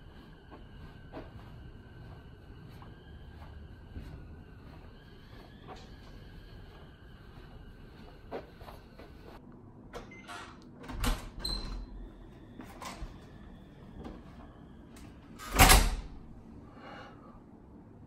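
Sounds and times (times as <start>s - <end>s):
door shutting with heavy thud: 15.4s - 16.1s.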